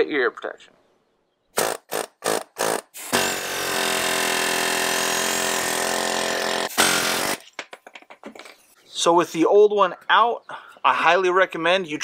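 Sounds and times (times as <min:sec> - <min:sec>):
pneumatic air hammer: 0:01.6 - 0:07.5.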